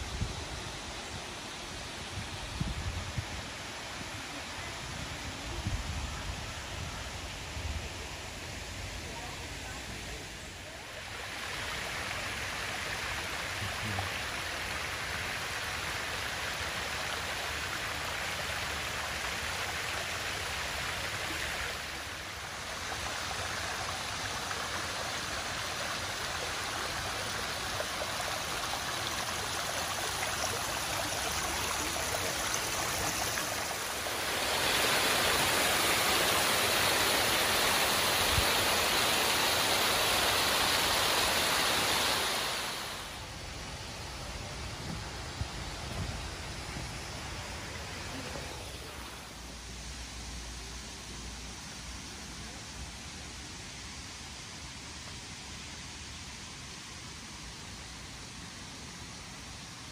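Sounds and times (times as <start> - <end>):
water rushing over rocks: 9.4 - 52.0.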